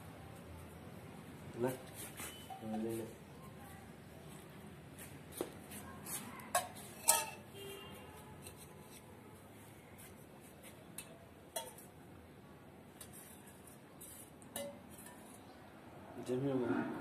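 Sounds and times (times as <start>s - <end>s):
metal bowl clinking on tile floor: 2.4s - 3.0s, 6.5s - 7.5s, 11.0s - 11.9s.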